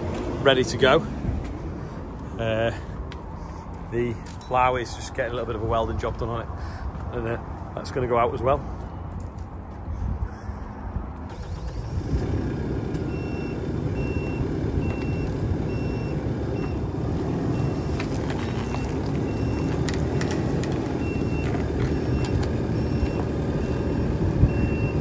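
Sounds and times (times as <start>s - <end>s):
diesel engine running under load: 10.2s - 25.0s
reversing alarm beeps: 13.1s - 16.9s, 17.5s - 20.4s, 21.0s - 25.0s.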